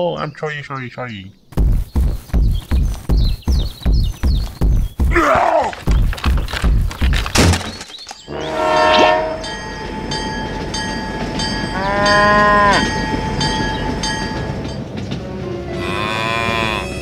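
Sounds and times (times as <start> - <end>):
clattering knocks: 1.6 - 8.3
wheels clicking over rail joints: 5.1 - 16.0
train rumble: 8.2 - 17.0
cow mooing: 8.3 - 9.5, 11.7 - 12.9, 15.7 - 17.0
train horn: 8.3 - 10.1, 11.7 - 13.1, 15.4 - 17.0.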